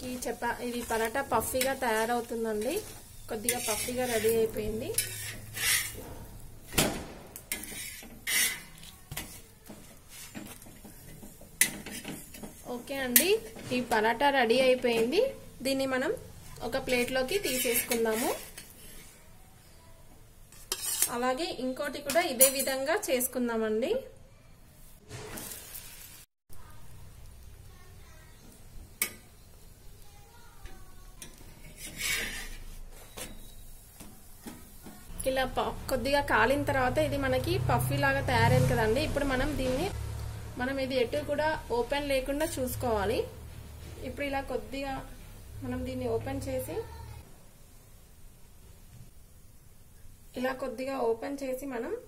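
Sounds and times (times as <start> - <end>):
metal spatula scraping griddle: 0.0 - 6.7, 7.4 - 14.0, 16.4 - 19.3, 20.5 - 21.4, 25.1 - 26.2, 31.2 - 33.9
metal spatula clinking on pan: 22.0 - 22.9.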